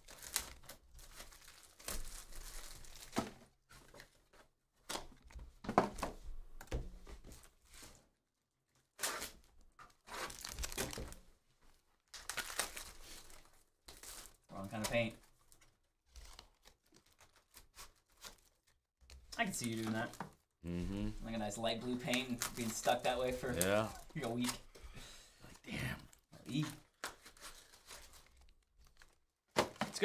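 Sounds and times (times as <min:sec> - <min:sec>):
plastic shrink-wrap tearing and crinkling: 0:00.0 - 0:03.2, 0:08.9 - 0:11.3, 0:12.0 - 0:14.5, 0:15.4 - 0:18.8, 0:27.1 - 0:29.2.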